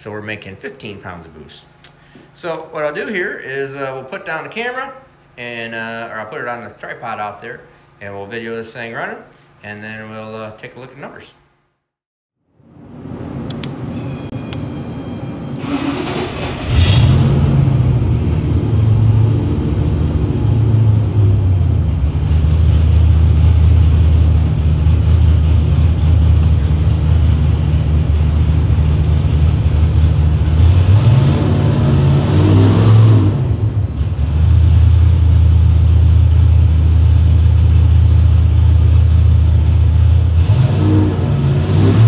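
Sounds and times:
engine running on dyno: 15.6 - 42.0.

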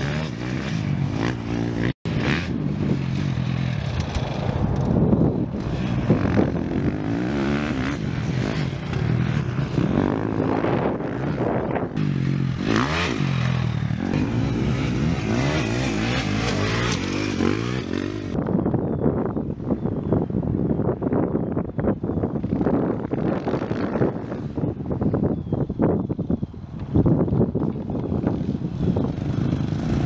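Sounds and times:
dirt bike engine revving: 0.0 - 4.6, 5.5 - 18.4, 28.3 - 30.0.

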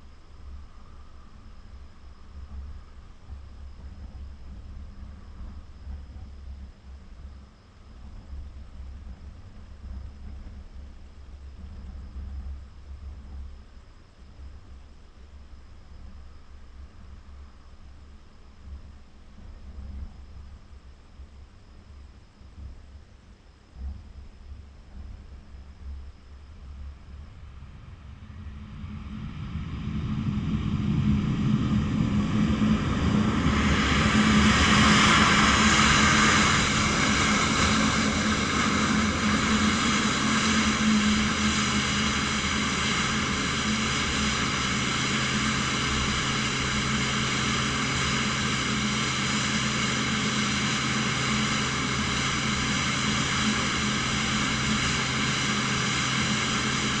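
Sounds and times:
jet engines whining: 28.2 - 57.0.

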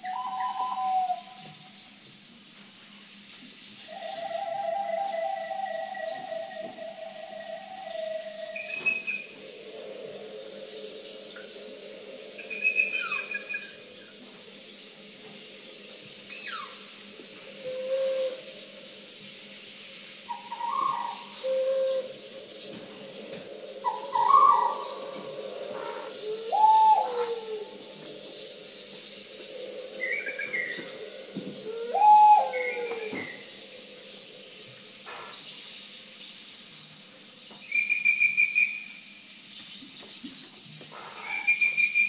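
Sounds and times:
whistle-like calls: 0.0 - 1.4, 3.9 - 10.7, 12.4 - 13.8, 16.3 - 16.9, 20.3 - 22.2, 23.8 - 27.8, 31.7 - 33.5, 37.6 - 39.0, 41.2 - 42.0
faint steady drone: 0.0 - 37.7.

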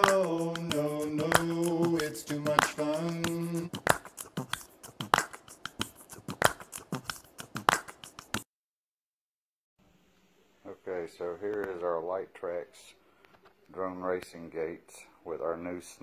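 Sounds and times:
sharp percussive clicks: 0.0 - 8.5.

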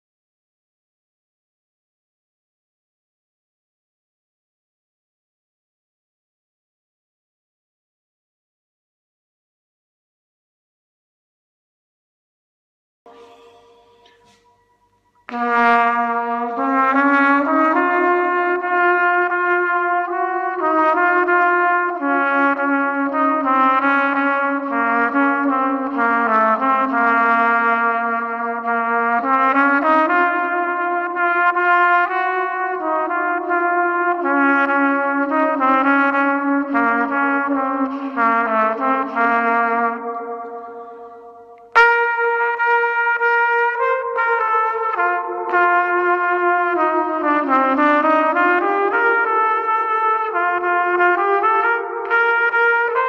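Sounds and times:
trumpet with echo effects: 13.1 - 53.0.

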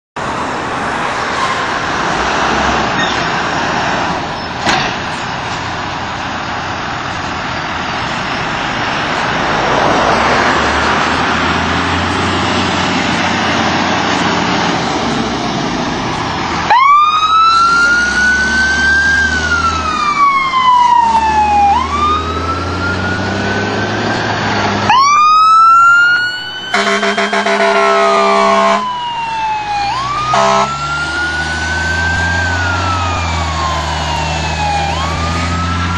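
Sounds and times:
diesel engine and road noise: 0.2 - 35.9
electronic siren wailing: 16.6 - 35.9
siren rapid yelp: 16.6 - 35.9
low horn blast: 26.7 - 29.0, 30.0 - 31.2.

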